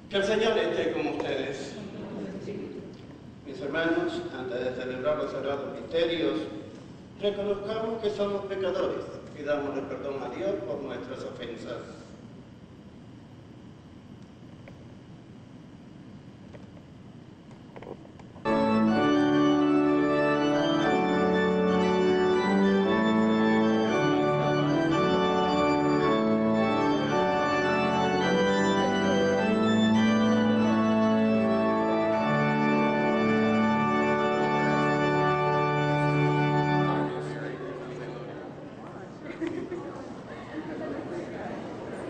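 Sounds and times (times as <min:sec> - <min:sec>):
church organ chords: 0:00.0 - 0:01.7, 0:18.4 - 0:38.6.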